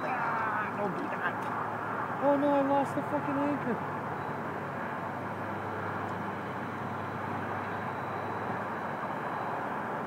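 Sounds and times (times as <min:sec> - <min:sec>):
faint high whine: 0:02.2 - 0:10.0.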